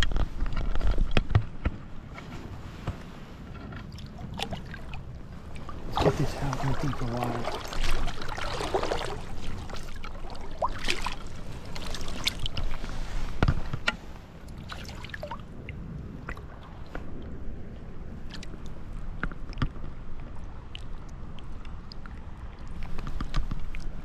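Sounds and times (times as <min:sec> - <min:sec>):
flowing water: 0:02.8 - 0:24.0
fish splashing in a net: 0:05.9 - 0:12.6.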